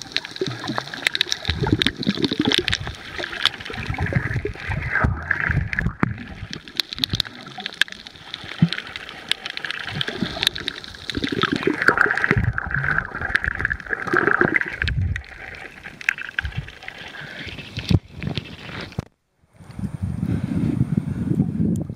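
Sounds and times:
underwater gurgling and rumbling: 0:00.0 - 0:19.1
scattered underwater clicks: 0:00.0 - 0:19.8.

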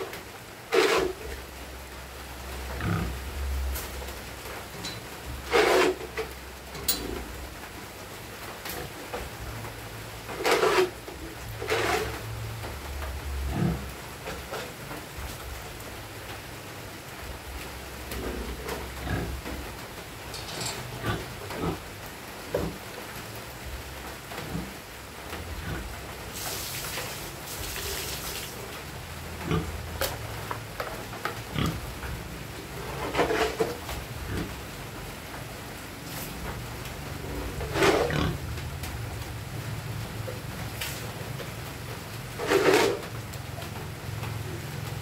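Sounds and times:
hissing rush of noise: 0:24.4 - 0:29.8.

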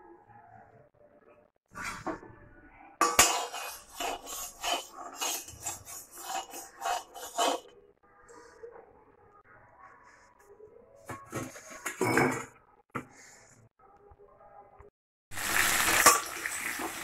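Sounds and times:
metal spoon scraping a pan: 0:03.0 - 0:07.8, 0:11.2 - 0:12.4, 0:15.8 - 0:16.9.

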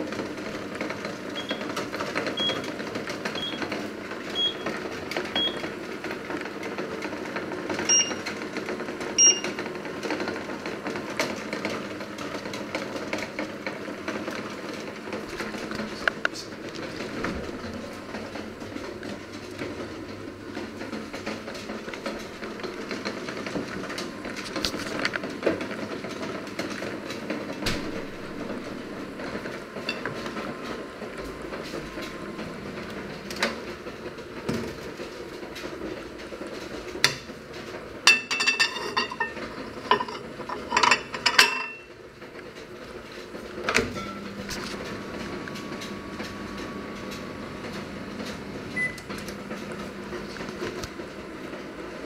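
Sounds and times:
dishes and utensils clattering: 0:29.8 - 0:30.4, 0:38.1 - 0:41.9.

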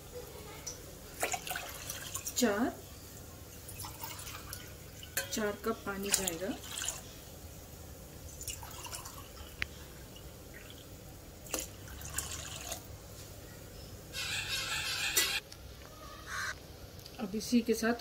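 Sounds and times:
water pouring with soft splashing: 0:01.2 - 0:02.4, 0:03.6 - 0:05.2, 0:06.0 - 0:07.2, 0:08.3 - 0:12.9.

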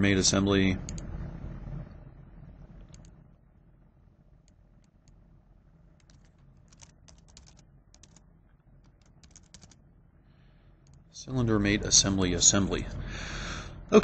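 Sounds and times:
keyboard typing: 0:06.0 - 0:08.2, 0:08.8 - 0:09.8.

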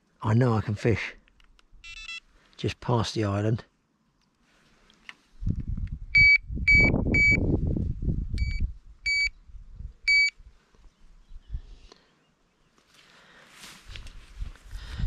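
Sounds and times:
electronic bite alarm beeping: 0:01.8 - 0:02.2, 0:06.2 - 0:07.4, 0:08.4 - 0:09.3, 0:10.1 - 0:10.3.

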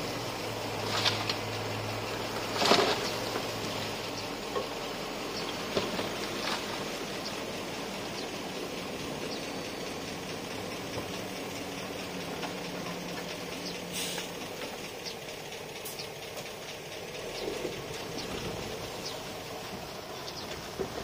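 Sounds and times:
diesel engine running: 0:00.0 - 0:21.0
hiss of noise: 0:13.8 - 0:14.5.

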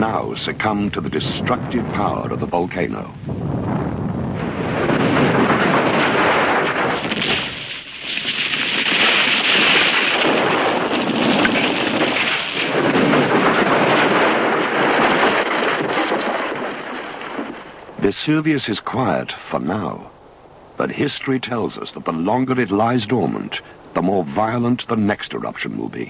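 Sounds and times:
volcanic eruption roar: 0:00.0 - 0:18.2.

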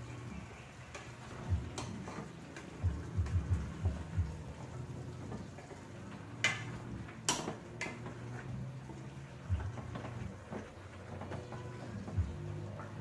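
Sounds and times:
spoon stirring vegetables in pot: 0:00.7 - 0:13.0.

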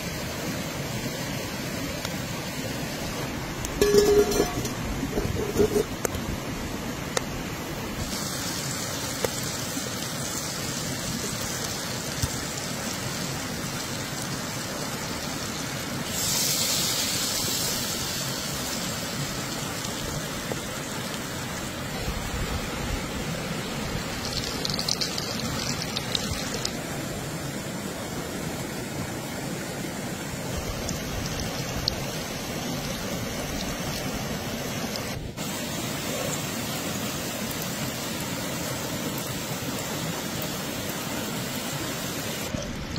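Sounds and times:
butter and oil sizzling in skillet: 0:03.7 - 0:06.2, 0:08.0 - 0:12.9, 0:15.2 - 0:20.1, 0:24.1 - 0:26.7.

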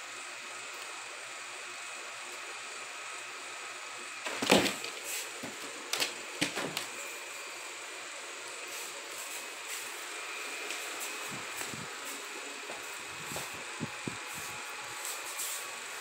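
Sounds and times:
cat scrabbling on a mattress: 0:04.3 - 0:04.9
steady hiss: 0:06.8 - 0:16.0.

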